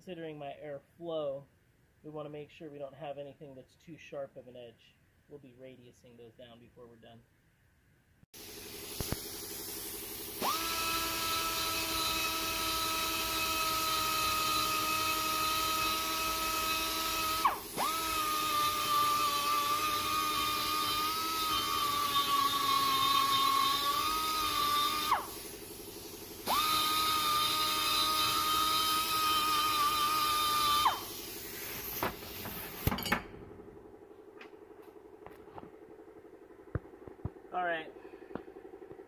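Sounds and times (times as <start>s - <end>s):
die grinder whining: 10.1s - 31.3s.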